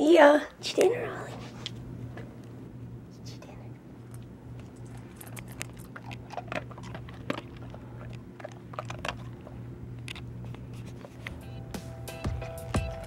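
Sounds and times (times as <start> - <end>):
dog crunching dry kibble: 4.0 - 11.5, 12.1 - 13.0.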